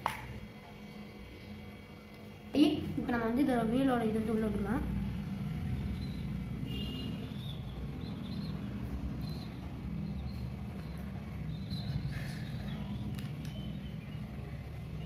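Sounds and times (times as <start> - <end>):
faint bird chirps: 5.8 - 15.0.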